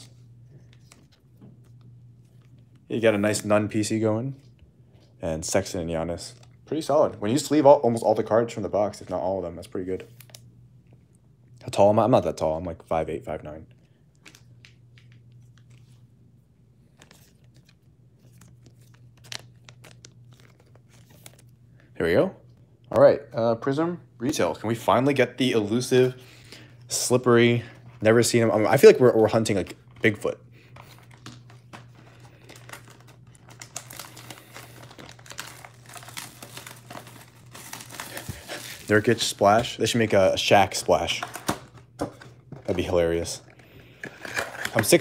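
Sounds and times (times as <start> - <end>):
trading cards and plastic sleeves rustling: 0.0 - 10.5, 13.8 - 22.2, 24.2 - 45.0
steady low hum: 0.0 - 44.7
plastic wrap crinkling and tearing: 16.9 - 21.6, 30.7 - 39.8.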